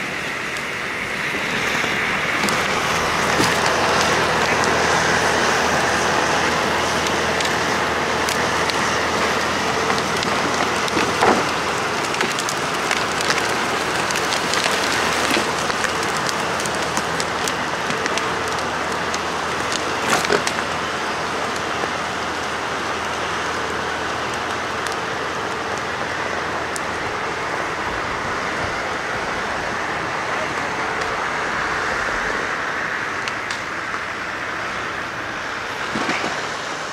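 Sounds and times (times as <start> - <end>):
diesel engine under load: 0.0 - 36.9
sharp cracks: 1.8 - 20.9.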